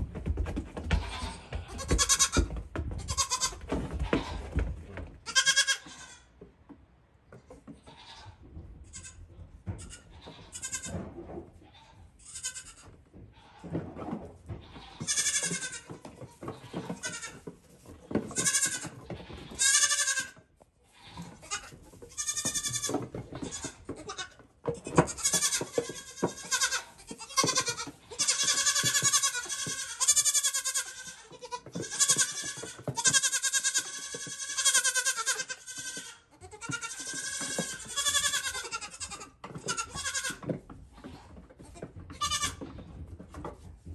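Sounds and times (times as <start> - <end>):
hooves knocking on wooden bench: 0.0 - 5.7, 13.7 - 20.2, 21.3 - 43.9
goat kids bleating: 0.9 - 6.4, 7.8 - 11.0, 11.6 - 13.7, 14.5 - 17.5, 18.2 - 42.8.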